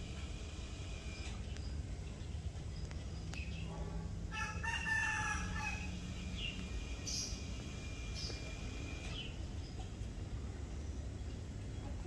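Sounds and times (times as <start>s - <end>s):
small birds chirping: 1.2s - 4.2s, 5.7s - 12.0s
rooster crowing: 4.3s - 6.1s.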